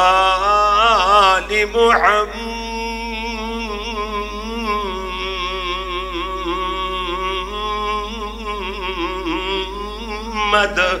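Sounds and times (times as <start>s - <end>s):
man chanting melodically: 0.0s - 11.0s
steady low hum: 1.5s - 3.7s.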